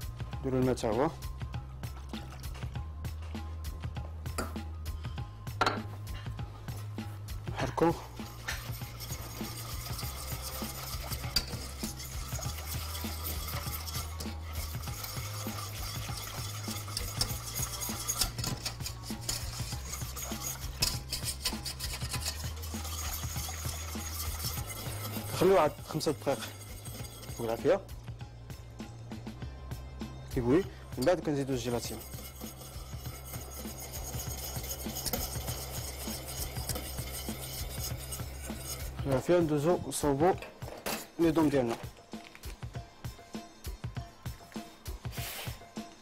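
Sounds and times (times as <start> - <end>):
whisk scraping metal saucepan: 7.5 - 28.0, 30.3 - 41.7.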